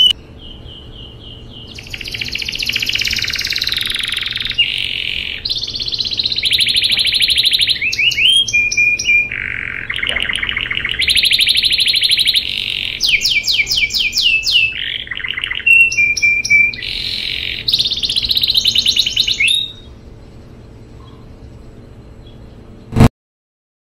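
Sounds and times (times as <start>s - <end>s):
canary singing trills: 0.0s - 23.0s.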